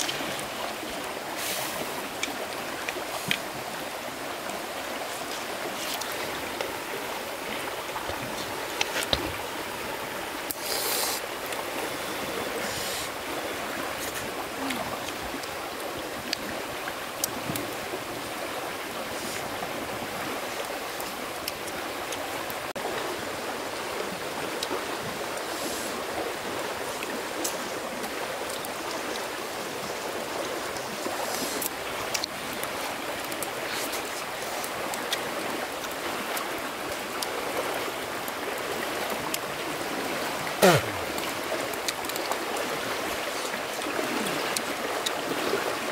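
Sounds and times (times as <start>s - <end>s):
stream water rushing: 0.0s - 45.9s
brief hissing bursts: 10.6s - 11.2s.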